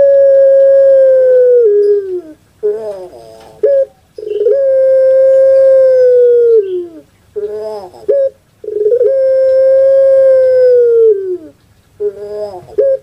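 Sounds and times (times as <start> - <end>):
dove calling: 0.0 - 13.0.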